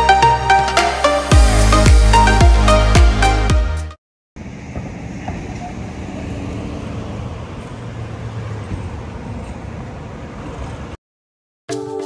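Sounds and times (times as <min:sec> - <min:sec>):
car traffic noise: 0:04.4 - 0:11.0.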